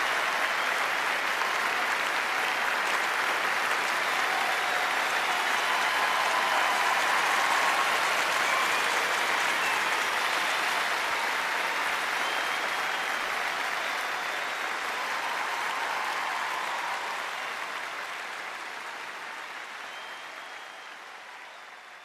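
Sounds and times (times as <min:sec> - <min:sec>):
large audience applauding: 0:00.0 - 0:22.0.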